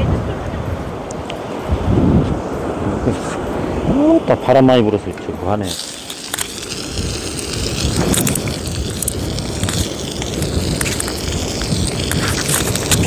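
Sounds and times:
wind buffeting microphone: 0.0 - 13.0
fish sizzling on grill pan: 5.7 - 13.0.

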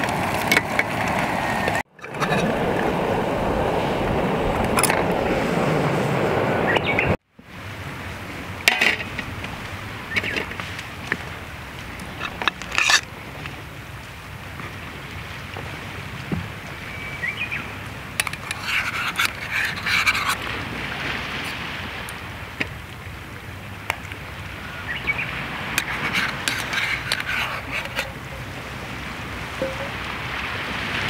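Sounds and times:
chopsticks scraping a frying pan: 12.1 - 13.1, 18.2 - 20.4, 25.8 - 28.5.

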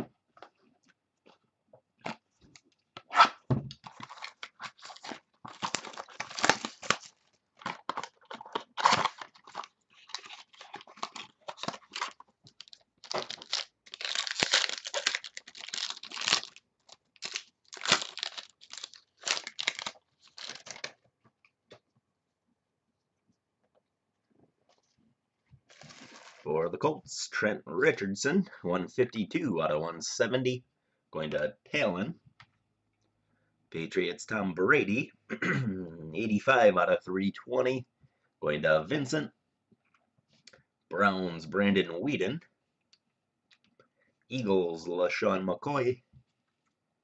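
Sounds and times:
plastic wrapping tearing and crackling: 3.8 - 21.0, 25.7 - 26.5.

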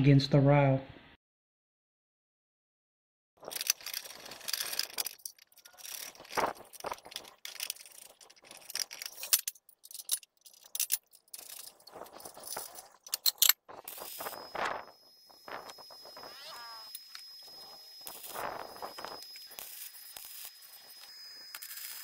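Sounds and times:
metal parts clinking: 3.4 - 14.4.

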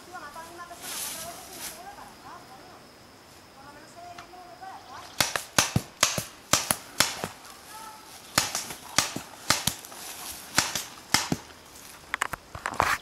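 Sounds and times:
paintball markers firing: 5.1 - 7.4, 8.3 - 11.6.

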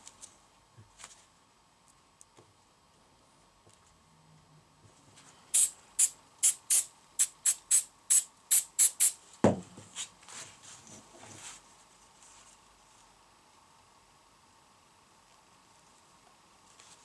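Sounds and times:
aerosol can spraying: 5.5 - 9.2
thump: 9.4 - 9.7.

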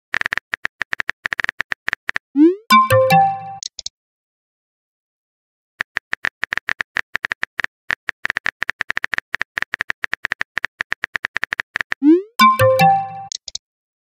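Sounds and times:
bright electronic chime: 2.4 - 3.6, 12.0 - 13.3.

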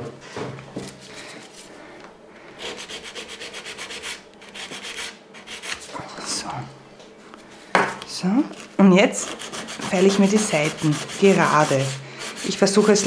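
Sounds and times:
nail file rasping on fingernail: 2.7 - 5.8, 9.2 - 13.0.

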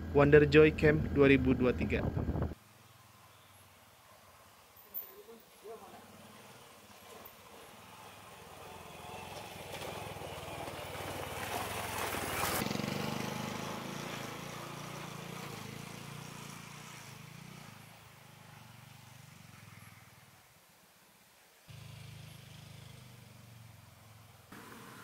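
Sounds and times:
motorcycle riding by: 5.6 - 20.5, 21.7 - 25.0.

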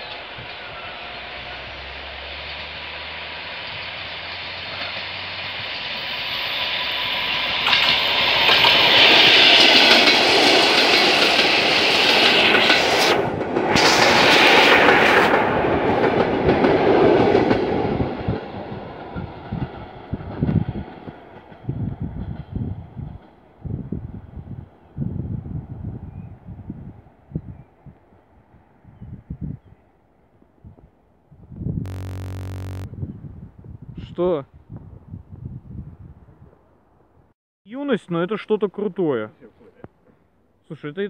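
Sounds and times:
train passing: 0.1 - 20.1.

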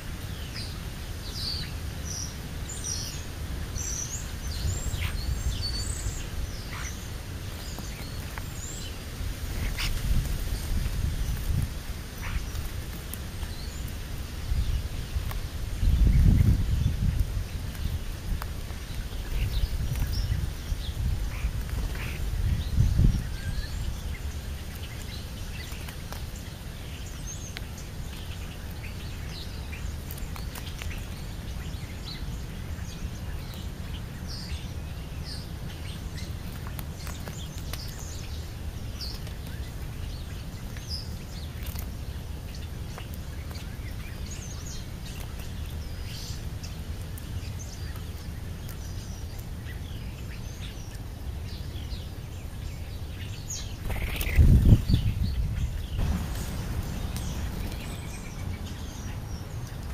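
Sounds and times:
songbirds chirping: 0.0 - 59.9
low rumble: 54.8 - 59.4
rustle and knock at microphone: 56.0 - 58.2.

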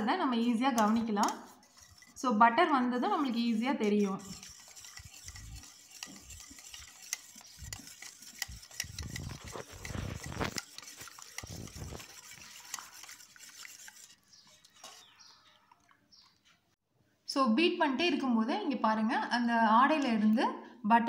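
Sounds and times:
wire whisk clinking in glass bowl: 3.9 - 14.2.

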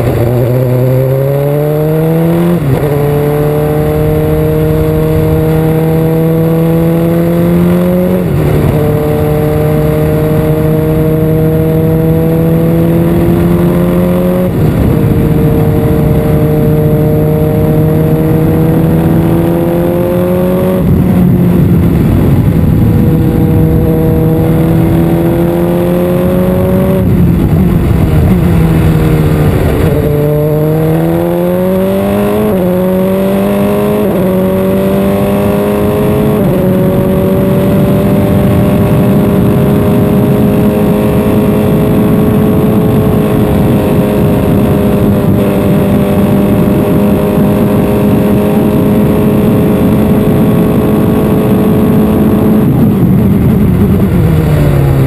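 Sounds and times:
race car engine with gear changes: 0.0 - 55.0.

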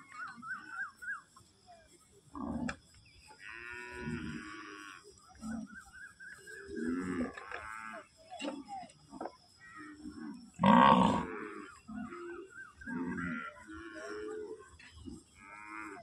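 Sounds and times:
cattle mooing: 10.6 - 14.4, 15.4 - 16.0.

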